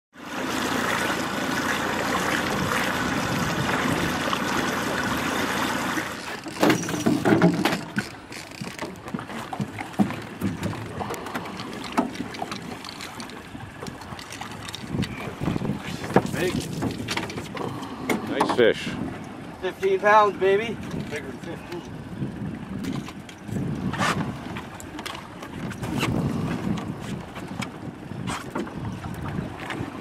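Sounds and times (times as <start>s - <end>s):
wind and water rushing: 0.1s - 30.0s
fish thrashing and splashing: 5.7s - 18.0s.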